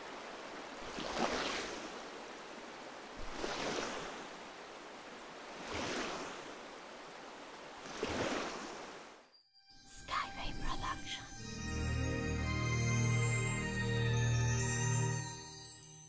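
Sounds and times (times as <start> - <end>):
steady wash of water: 0.0 - 9.2
oars splashing through water: 0.8 - 2.0, 3.2 - 4.5, 5.5 - 6.6, 7.8 - 9.1.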